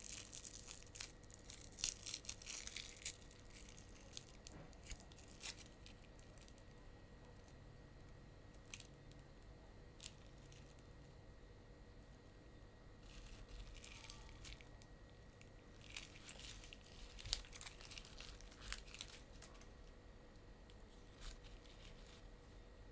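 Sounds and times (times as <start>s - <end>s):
rustling of plastic tubs: 15.8s - 19.6s.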